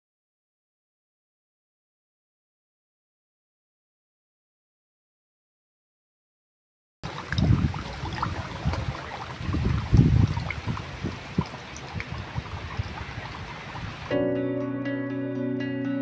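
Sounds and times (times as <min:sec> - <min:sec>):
water trickling into stone basin: 0:07.0 - 0:14.1
water drips and gurgles: 0:07.0 - 0:14.2
plucked-string music: 0:14.1 - 0:16.0.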